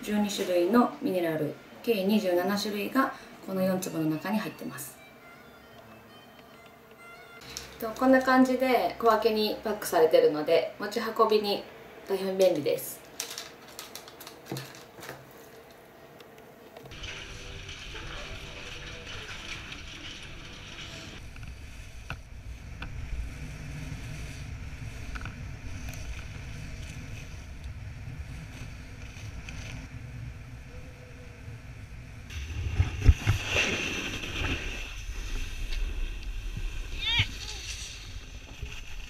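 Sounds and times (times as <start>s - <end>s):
snowboard scraping: 16.9s - 30.2s, 32.3s - 39.0s
wind rumble on microphone: 21.2s - 39.0s.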